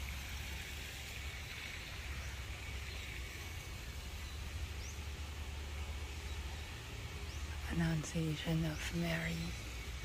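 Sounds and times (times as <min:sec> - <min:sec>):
faint hiss: 0:00.0 - 0:10.0
bird chirp: 0:01.1 - 0:10.0.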